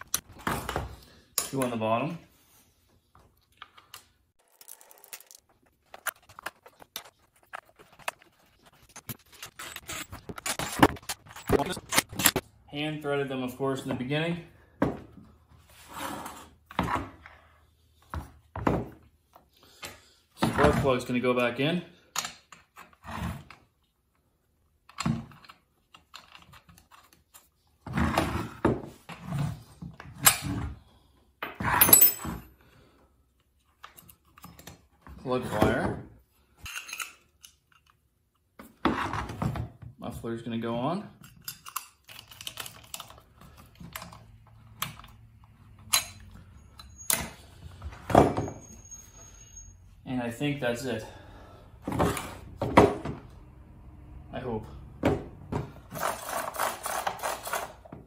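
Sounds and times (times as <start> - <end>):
metal parts and tools clinking: 4.4 - 12.4, 31.4 - 32.5, 36.6 - 38.1, 41.2 - 47.6.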